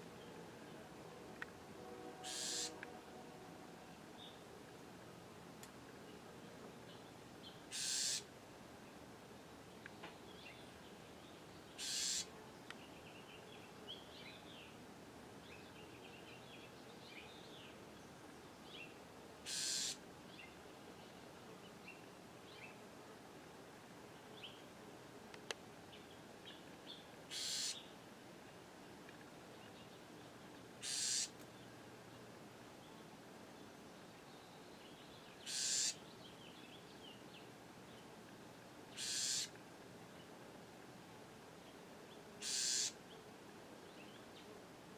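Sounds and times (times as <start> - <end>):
wren harsh buzzy calls: 2.2 - 2.8, 7.7 - 8.3, 11.8 - 12.3, 19.4 - 20.0, 27.3 - 27.8, 30.8 - 31.4, 35.4 - 36.0, 38.9 - 39.6, 42.4 - 43.0.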